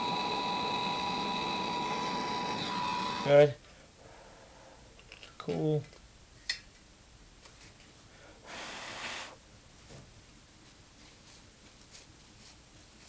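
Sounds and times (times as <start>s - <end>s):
breathy puff of air: 8.2s - 9.4s.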